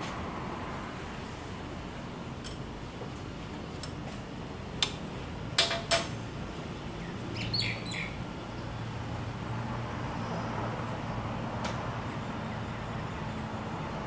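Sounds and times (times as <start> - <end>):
hand tool clinking on metal: 5.6 - 6.3
small bird chirping: 7.3 - 8.2.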